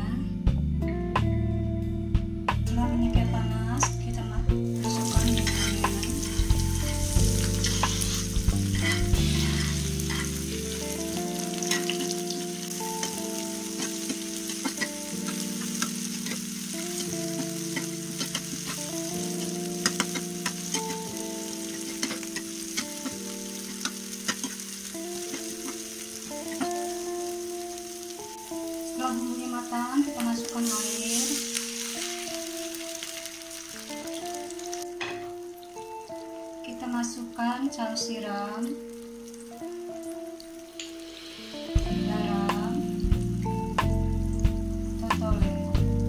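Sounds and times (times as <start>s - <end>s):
food sizzling in hot oil: 3.8s - 46.0s
metal spatula scraping pan: 5.0s - 6.6s, 7.4s - 8.4s, 9.4s - 10.6s.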